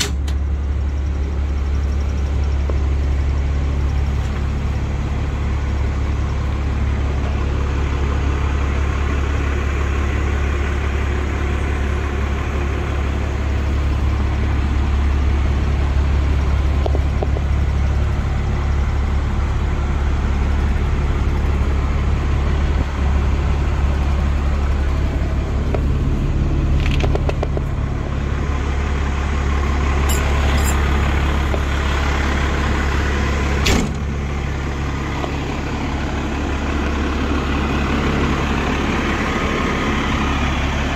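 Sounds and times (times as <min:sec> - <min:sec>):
diesel engine idling: 0:00.0 - 0:40.9
sharp thump: 0:33.6 - 0:34.0.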